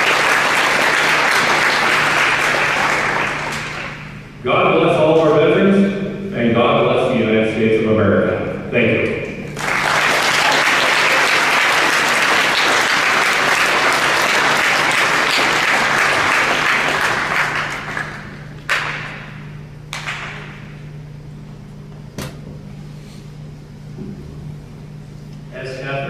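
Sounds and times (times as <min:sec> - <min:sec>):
audience applauding: 0:00.0 - 0:04.1, 0:09.5 - 0:19.2.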